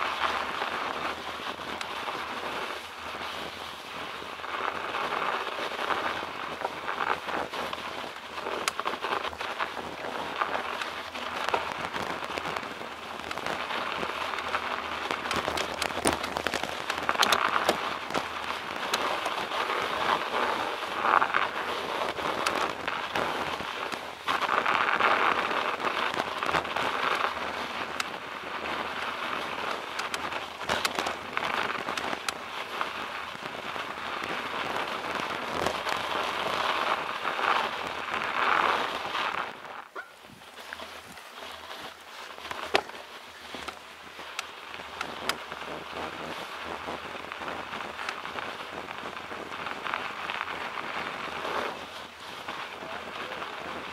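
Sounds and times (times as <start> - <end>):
bicycle tyres crunching over snow: 0.0 - 53.9.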